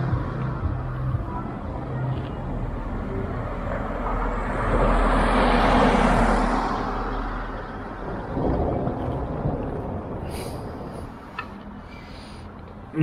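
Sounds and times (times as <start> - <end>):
low rumble of street traffic: 0.0 - 13.0
vehicle driving past: 2.8 - 12.5.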